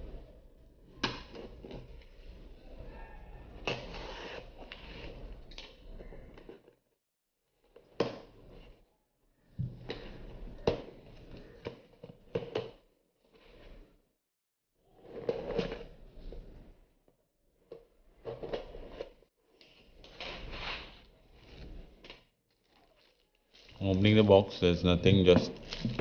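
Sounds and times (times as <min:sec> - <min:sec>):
cardboard and tape scraping: 0:03.6 - 0:05.8, 0:18.3 - 0:24.4.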